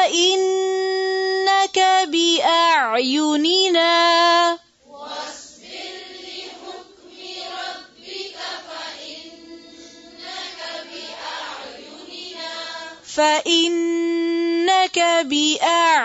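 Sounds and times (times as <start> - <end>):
group of voices chanting: 4.8 - 13.0.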